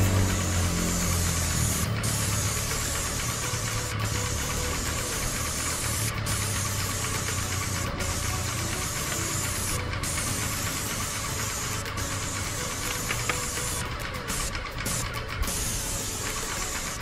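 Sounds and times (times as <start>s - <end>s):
engine or pump humming: 0.0s - 17.0s
high-pressure spray hissing: 0.0s - 17.0s.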